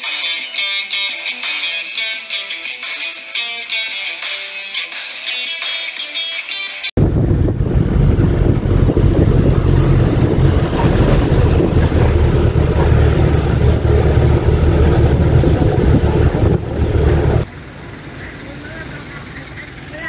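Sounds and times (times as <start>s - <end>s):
vehicle engine and road noise: 7.0s - 20.0s.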